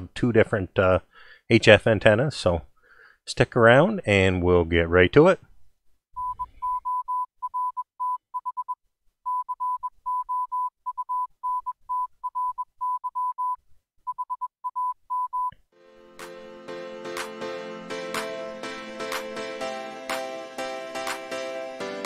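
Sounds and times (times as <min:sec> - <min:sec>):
morse code beeps: 0:06.2 - 0:15.5
music: 0:15.8 - 0:22.0.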